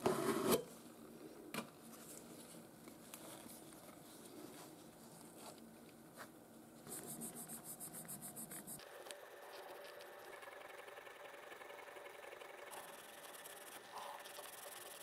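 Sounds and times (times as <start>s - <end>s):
fast regular rubbing: 6.8s - 8.8s.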